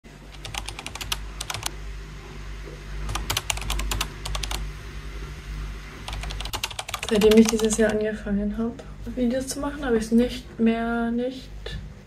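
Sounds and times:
low steady hum: 0.1 - 12.0
keyboard typing clicks: 0.3 - 1.7, 3.1 - 4.6, 6.1 - 8.0.

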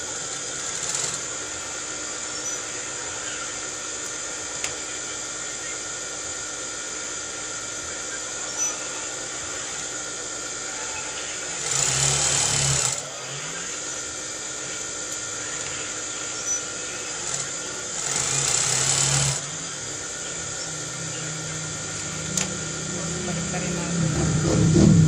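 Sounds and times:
industrial sewing machine stitching: 0.0 - 1.5, 11.4 - 13.6, 16.5 - 19.5
steady background hum: 0.0 - 25.0.

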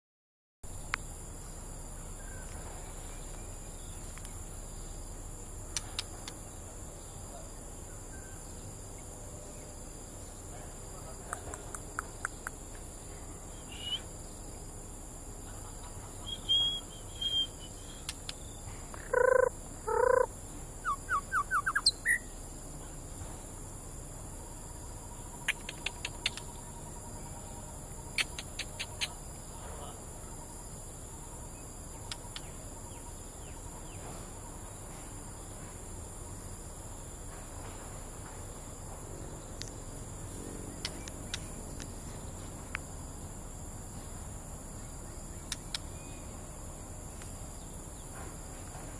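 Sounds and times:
high insect drone: 0.7 - 48.9
harsh bird calls: 1.6 - 14.6, 15.4 - 22.4, 25.0 - 35.0
bird calls and chips: 15.8 - 22.3, 25.3 - 27.0, 28.1 - 29.2, 31.9 - 34.6.

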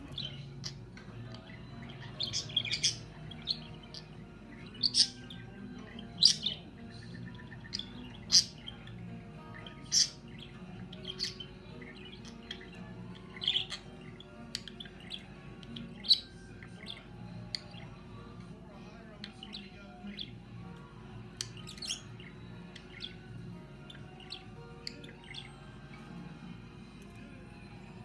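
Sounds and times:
faint background music: 0.0 - 28.0
budgerigar chirps: 0.2 - 18.0, 21.4 - 25.5.

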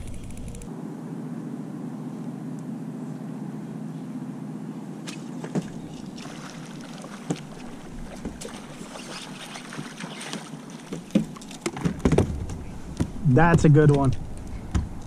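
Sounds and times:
low steady hum: 0.0 - 15.0
fish splashing: 5.1 - 11.8.

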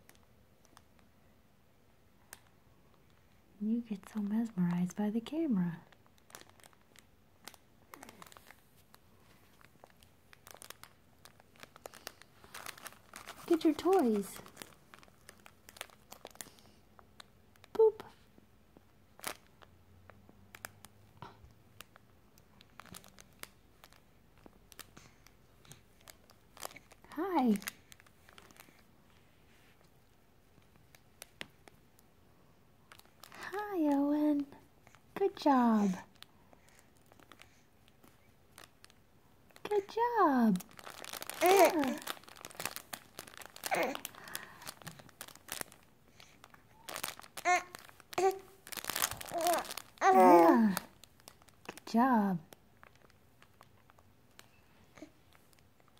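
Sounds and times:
fabric toy crinkling: 5.6 - 17.8, 18.8 - 19.7, 20.4 - 32.1, 32.9 - 34.0, 34.8 - 51.9, 52.5 - 55.9
baby cooing and babbling: 41.3 - 42.1, 43.6 - 44.1, 46.7 - 48.5, 49.2 - 50.9.

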